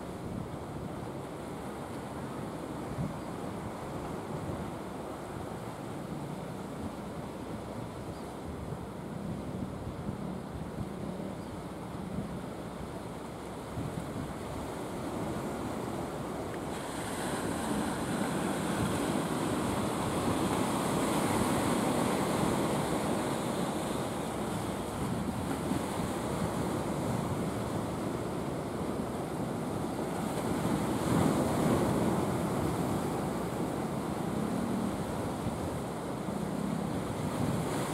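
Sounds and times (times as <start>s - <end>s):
sea surf rushing: 8.4s - 37.9s
wind buffeting microphone: 13.6s - 37.9s.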